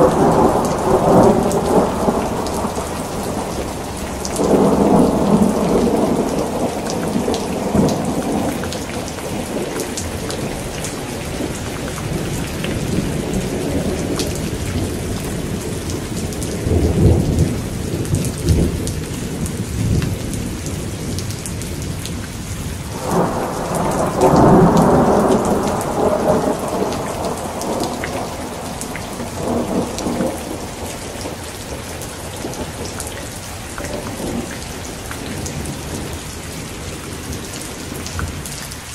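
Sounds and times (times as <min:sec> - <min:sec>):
rolling thunder: 0:00.0 - 0:38.7
rain hissing: 0:00.0 - 0:38.9.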